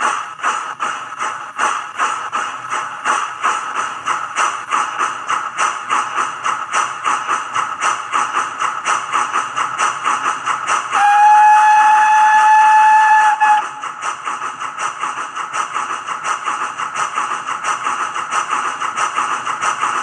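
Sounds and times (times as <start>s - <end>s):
steam locomotive chuffs: 0.0s - 20.0s
steam whistle: 10.9s - 13.8s.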